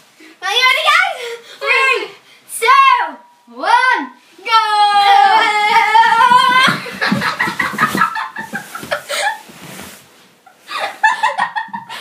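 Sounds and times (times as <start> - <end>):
girl squealing and shrieking: 4.5 - 6.8
soft bumps on stairs: 6.2 - 9.0.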